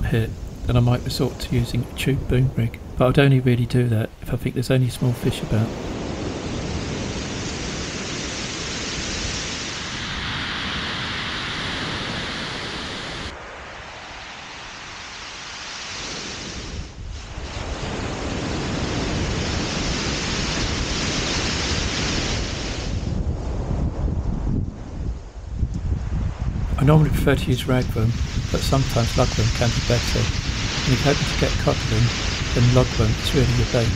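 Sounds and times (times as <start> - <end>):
wind buffeting microphone: 16.6 - 33.9.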